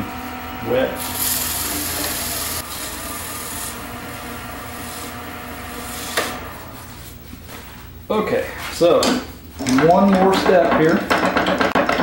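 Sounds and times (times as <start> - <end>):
wood lathe humming: 0.0 - 7.1.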